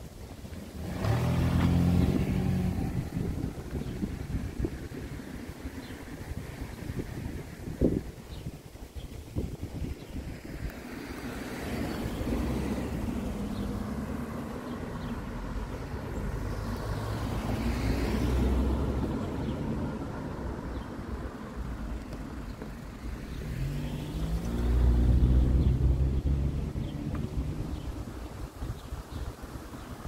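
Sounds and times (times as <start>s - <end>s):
cars driving past: 0.6s - 7.6s, 10.3s - 30.0s
car engine speeding up: 0.8s - 4.2s, 23.1s - 28.1s.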